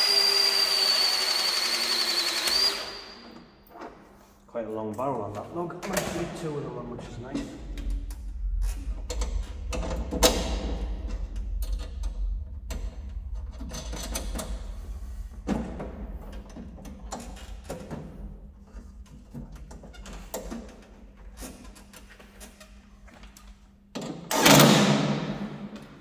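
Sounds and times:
steady low hum: 0:03.5 - 0:19.7.

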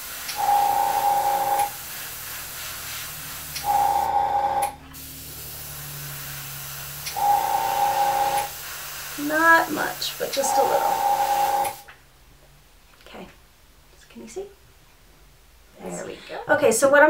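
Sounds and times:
airbrush spraying with whistling tone: 0:00.0 - 0:04.1, 0:05.0 - 0:11.9.

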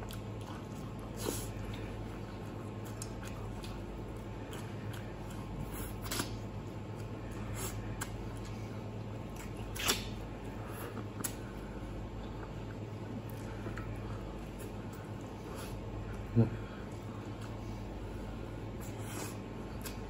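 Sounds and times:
wet chewing: 0:00.0 - 0:16.2, 0:18.6 - 0:20.0
low steady hum: 0:00.0 - 0:20.0
lip smacks and sucks: 0:05.9 - 0:06.6, 0:09.2 - 0:10.2, 0:10.9 - 0:11.4, 0:18.8 - 0:20.0.

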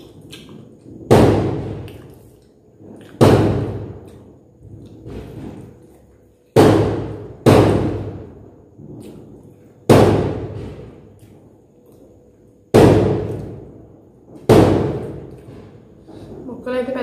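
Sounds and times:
loud knocks or thuds: 0:01.0 - 0:01.9, 0:03.2 - 0:04.0, 0:06.6 - 0:08.4, 0:09.8 - 0:11.0, 0:12.7 - 0:13.6, 0:14.4 - 0:15.7.

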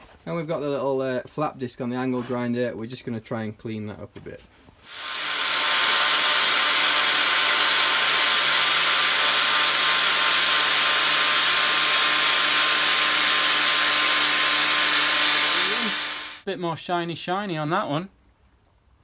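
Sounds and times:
angle grinder grinding metal: 0:04.9 - 0:16.4.

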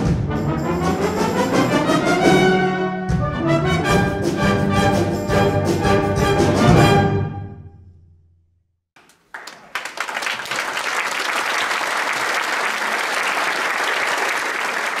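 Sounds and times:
audience applauding: 0:09.0 - 0:15.0.

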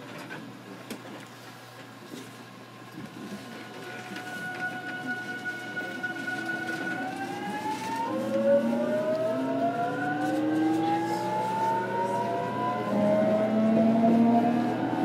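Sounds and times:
electric train motors whining: 0:03.5 - 0:15.0.

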